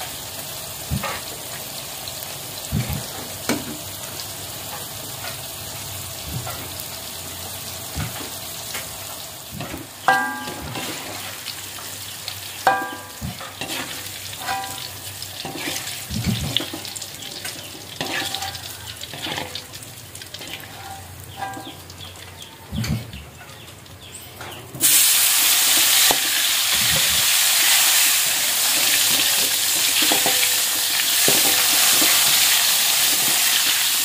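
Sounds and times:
food sizzling in oil: 0.0s - 22.7s, 24.8s - 34.0s
metal spatula scraping wok: 12.7s - 21.8s.

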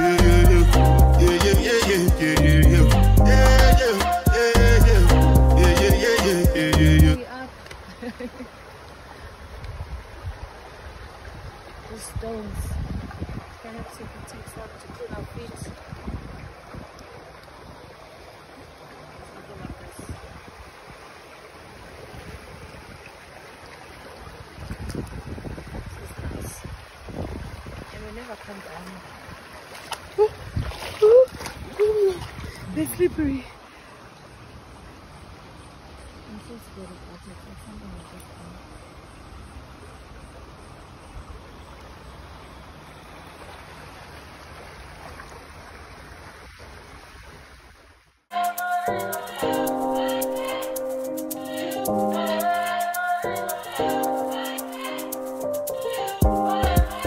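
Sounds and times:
stream flowing over stones: 5.6s - 48.4s
wind rumbling on microphone: 9.4s - 18.0s, 19.4s - 21.1s, 24.2s - 29.6s, 30.2s - 33.5s.

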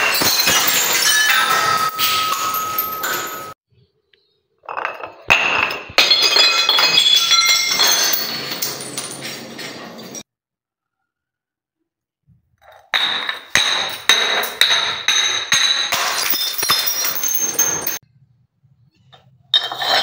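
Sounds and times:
clinking shards scattering: 0.0s - 3.6s, 4.7s - 10.2s, 12.9s - 18.0s
glass bottle hitting steps: 0.0s - 3.6s, 4.6s - 10.2s, 12.7s - 18.0s
glass shards tinkling: 0.0s - 3.6s, 6.0s - 10.2s, 13.3s - 18.0s
glass shattering: 0.0s - 3.6s, 4.7s - 10.2s, 13.0s - 18.0s.

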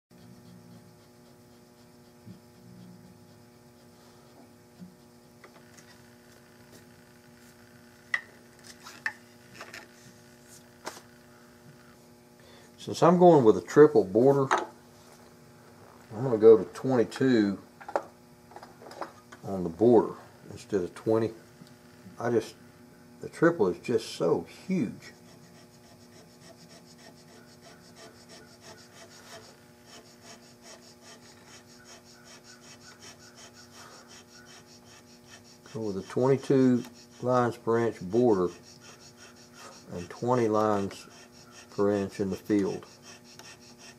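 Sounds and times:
steady electrical hum: 0.1s - 43.9s
cutter scraping wood: 25.0s - 43.9s.

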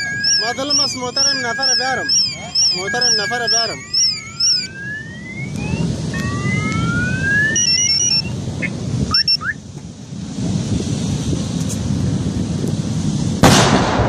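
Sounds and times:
car alarms sounding: 0.0s - 9.6s.

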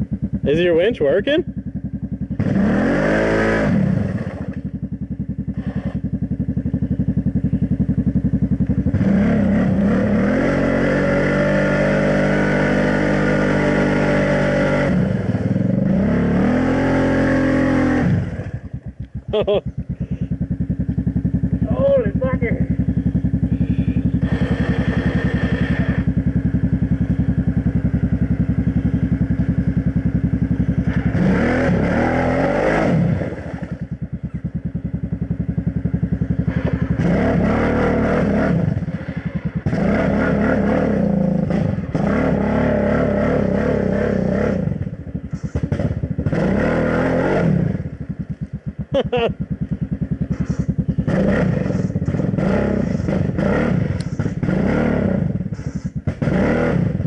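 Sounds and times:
quad engine revving: 0.0s - 57.0s
tyres churning through mud: 8.9s - 18.6s, 23.0s - 26.9s, 30.5s - 34.0s, 35.7s - 47.9s, 49.0s - 57.0s.

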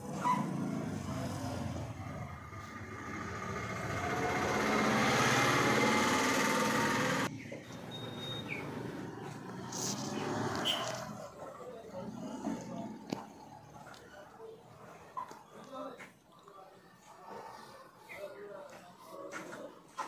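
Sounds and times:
motor engine: 0.0s - 14.0s.

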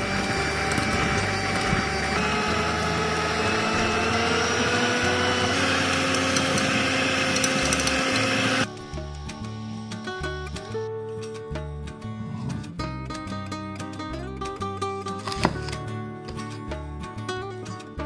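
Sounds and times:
electric hand mixer whining: 0.0s - 8.7s.

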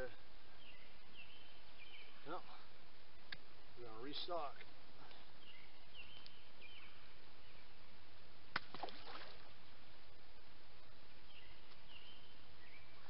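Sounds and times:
small birds chirping: 0.0s - 8.2s, 10.1s - 13.0s
water splash with gurgles: 8.6s - 9.5s.

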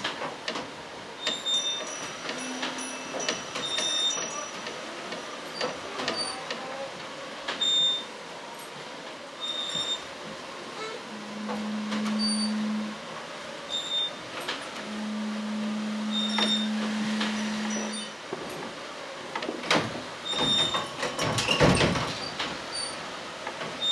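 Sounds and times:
short high squeaks: 1.2s - 4.7s, 9.4s - 10.1s, 10.8s - 12.8s, 13.7s - 14.2s, 16.1s - 18.2s.

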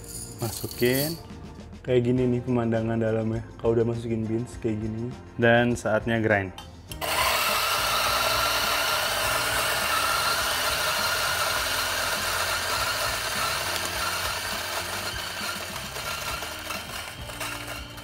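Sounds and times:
electric coffee grinder running: 7.0s - 18.0s.

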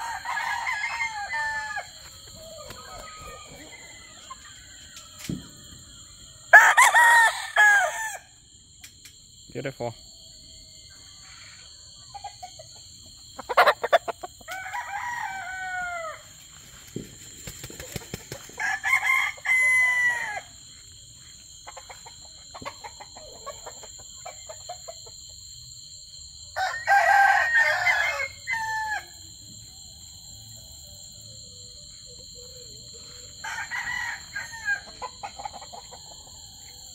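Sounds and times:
roosters crowing: 0.0s - 8.5s, 13.3s - 16.6s, 18.5s - 20.7s, 26.4s - 29.3s, 32.8s - 36.9s.

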